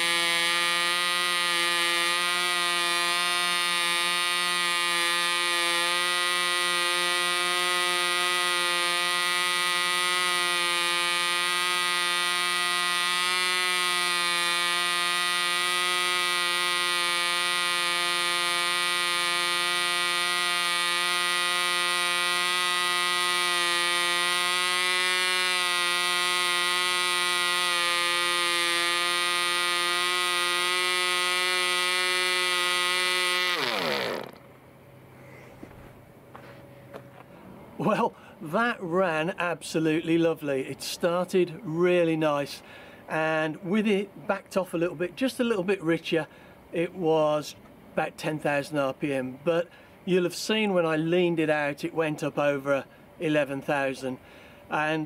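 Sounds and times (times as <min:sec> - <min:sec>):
model engine buzzing: 0:00.0 - 0:34.5.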